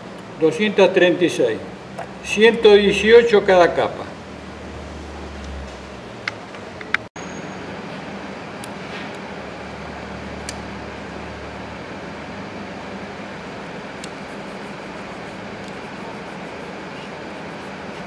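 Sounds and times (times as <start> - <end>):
machine hum and hiss: 4.2 - 18.0.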